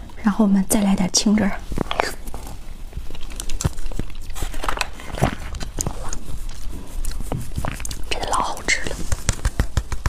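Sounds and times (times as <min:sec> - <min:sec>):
chewing shaved ice: 0:01.8 - 0:09.6
foil pouch crinkling: 0:03.0 - 0:08.1.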